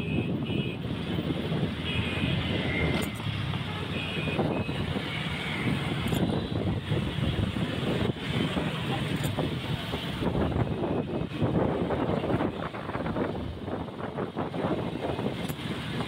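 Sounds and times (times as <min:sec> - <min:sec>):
car horn toots: 0:00.0 - 0:00.8, 0:01.8 - 0:04.8
traffic rumble: 0:00.0 - 0:16.0.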